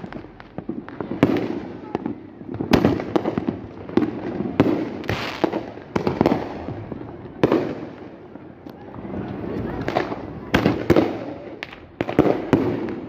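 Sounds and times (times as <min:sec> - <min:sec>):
fireworks bangs: 0:00.0 - 0:13.0
fireworks crackling: 0:00.0 - 0:13.0.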